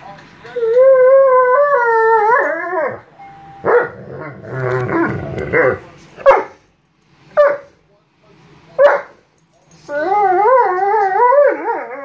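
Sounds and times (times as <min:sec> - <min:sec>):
dog whining howl: 0:00.4 - 0:03.1, 0:09.9 - 0:12.0
dog barking: 0:03.7 - 0:04.0, 0:06.2 - 0:06.6, 0:07.4 - 0:07.8, 0:08.8 - 0:09.2
dog growling: 0:03.9 - 0:05.9.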